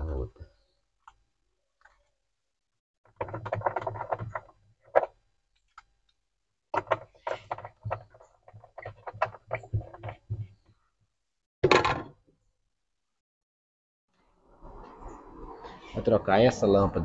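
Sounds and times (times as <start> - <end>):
hard plastic clicking and rattling: 3.1 - 5.9, 6.8 - 10.5.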